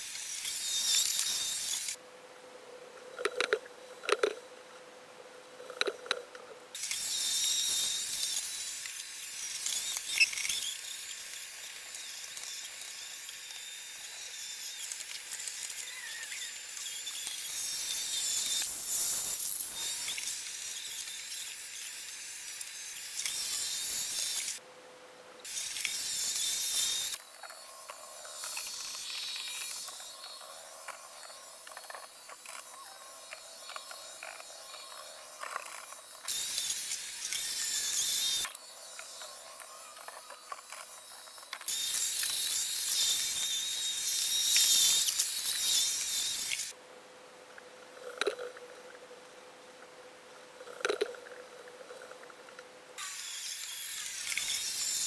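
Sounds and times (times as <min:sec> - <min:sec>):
robot vacuum whirring: 0:25.4 - 0:46.7.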